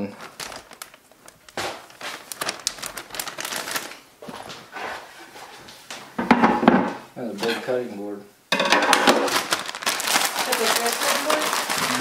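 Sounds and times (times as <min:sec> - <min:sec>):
plastic bag crinkling: 0:00.0 - 0:04.5, 0:08.9 - 0:12.0
loud knock: 0:06.2 - 0:07.0.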